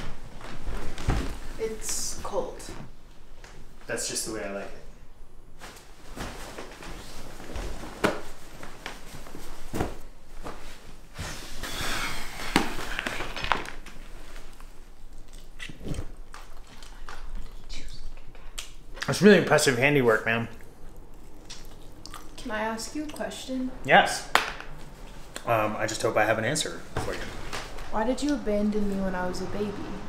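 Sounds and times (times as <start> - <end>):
clothing rustling: 0.0 - 4.0, 5.5 - 15.2.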